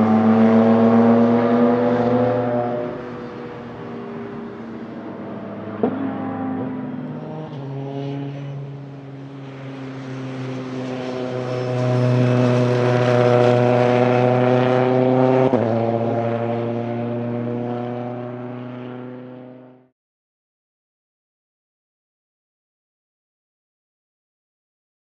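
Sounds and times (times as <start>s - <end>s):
car engine passing at speed: 0.0s - 19.9s.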